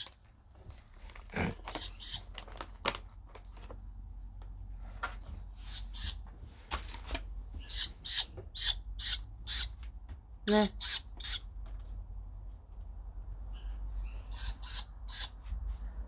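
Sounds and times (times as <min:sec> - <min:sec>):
owl chicks begging calls: 0:01.7 - 0:02.3, 0:05.6 - 0:06.2, 0:07.6 - 0:09.8, 0:10.5 - 0:11.5, 0:13.6 - 0:15.4.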